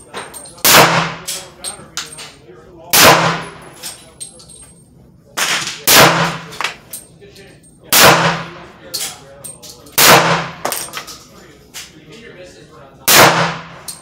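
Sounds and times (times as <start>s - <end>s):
pistol shots: 0.6s - 1.4s, 2.9s - 3.6s, 5.4s - 6.7s, 7.9s - 8.6s, 10.0s - 10.8s, 13.1s - 14.0s.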